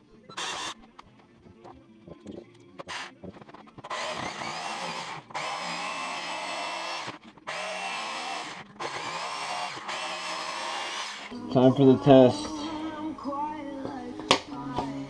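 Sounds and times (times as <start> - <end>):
jigsaw cutting plywood: 2.8 - 11.3.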